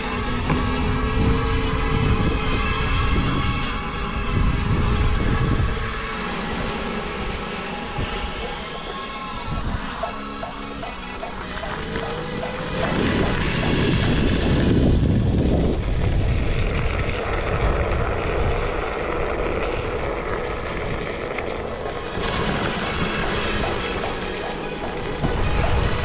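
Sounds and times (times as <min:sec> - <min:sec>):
wind on microphone: 0:00.0 - 0:26.0
tyres rolling on wet pavement: 0:16.2 - 0:25.2.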